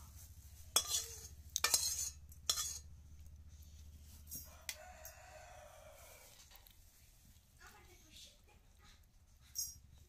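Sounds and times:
metal spatula scraping a pan: 0:00.0 - 0:03.0
spatula clinking on a plate: 0:00.7 - 0:03.0.

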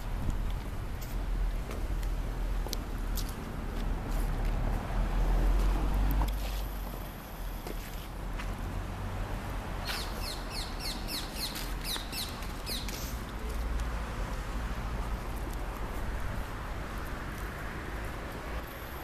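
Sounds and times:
bird chirping: 0:09.8 - 0:13.0.

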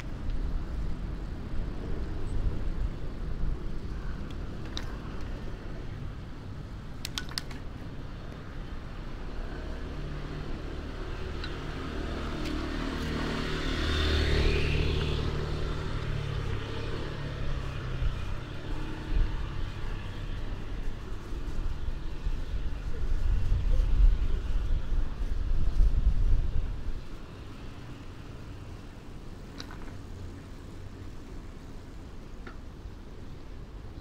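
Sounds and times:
low traffic rumble: 0:00.0 - 0:34.0
sharp clicks: 0:07.0 - 0:07.7
vehicle passing: 0:07.8 - 0:32.0.

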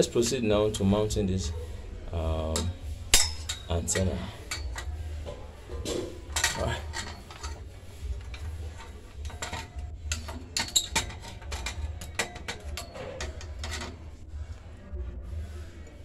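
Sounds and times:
metal antenna clicking and rattling: 0:05.8 - 0:14.1.

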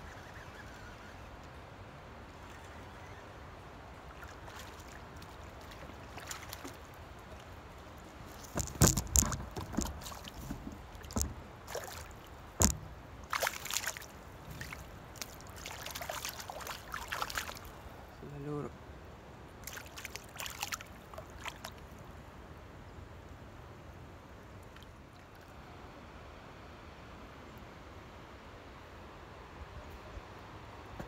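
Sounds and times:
fish splashing in water: 0:04.1 - 0:07.0, 0:08.3 - 0:17.8, 0:19.6 - 0:21.8.

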